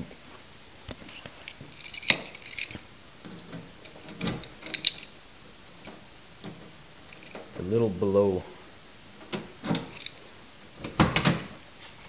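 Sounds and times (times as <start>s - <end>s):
keys jingling: 1.4s - 5.1s, 7.0s - 7.6s, 9.6s - 10.3s
key scraping in door lock: 1.8s - 5.1s.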